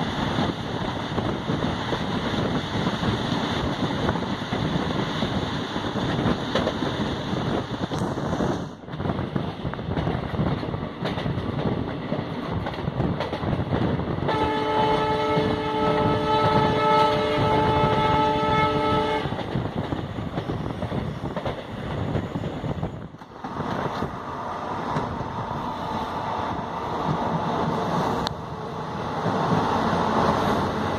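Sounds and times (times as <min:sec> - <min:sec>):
train rumble and wheel noise: 0:00.0 - 0:30.9
locomotive horn blast: 0:14.3 - 0:19.3.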